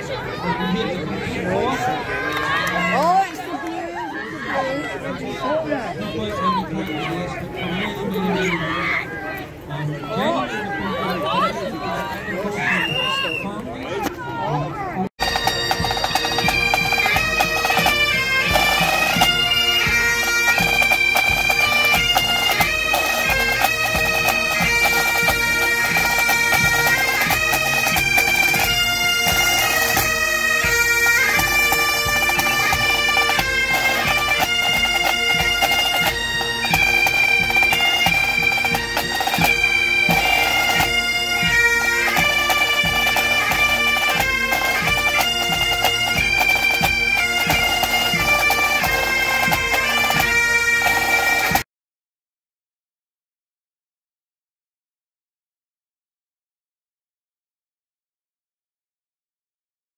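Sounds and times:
bagpipes playing: 15.2 - 51.6
pipe band drums: 15.2 - 51.6.

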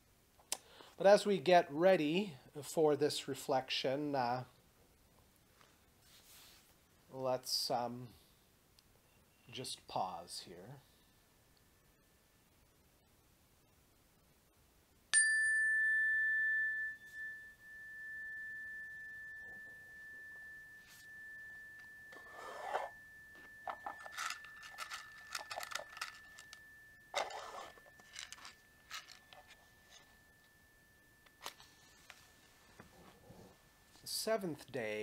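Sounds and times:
rustling handling noises: 5.5 - 6.8, 21.8 - 30.6
chime bar ringing: 15.2 - 34.3.

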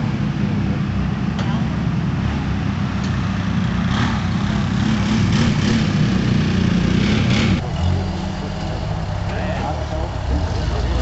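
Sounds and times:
buggy engine revving: 0.0 - 11.0
lower buggy engine note: 0.0 - 11.0.

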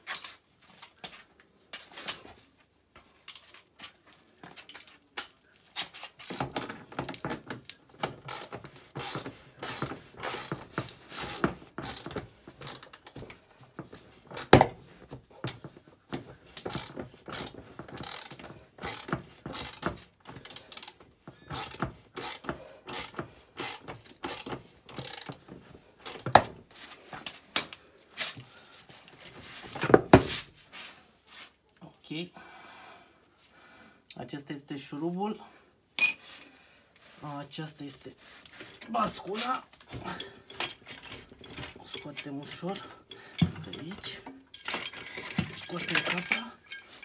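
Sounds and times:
ratchet wrench clicking: 16.7 - 25.4.

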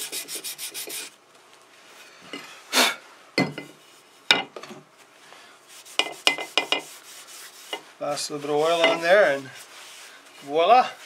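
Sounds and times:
sandpaper rubbing on wood: 0.0 - 1.2, 5.7 - 11.0.

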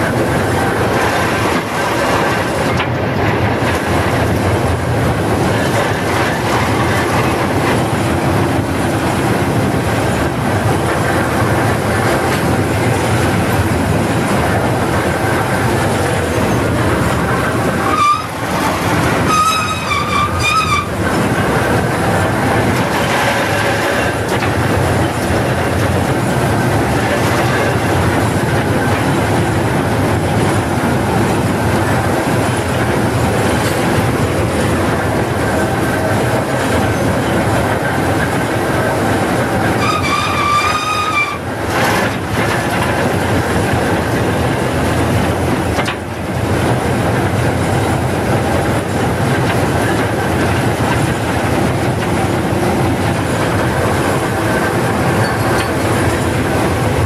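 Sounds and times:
diesel engine running: 0.0 - 57.0
machinery rattling and clattering: 0.0 - 57.0
wavering squeal: 17.8 - 21.0, 39.8 - 41.5.

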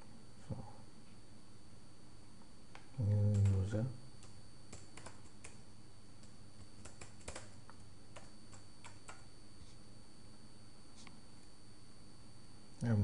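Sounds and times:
computer keyboard typing: 3.1 - 5.6, 6.2 - 9.3.

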